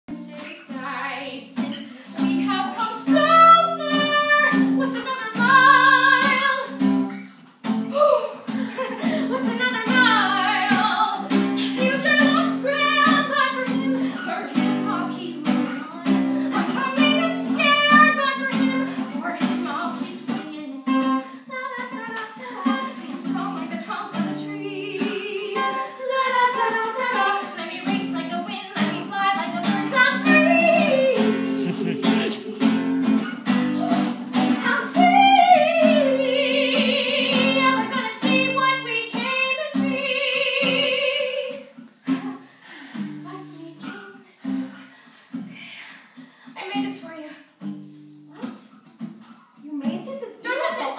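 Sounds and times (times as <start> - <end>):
woman singing: 0.1 - 7.1, 7.7 - 44.8
guitar accompaniment: 0.1 - 50.9.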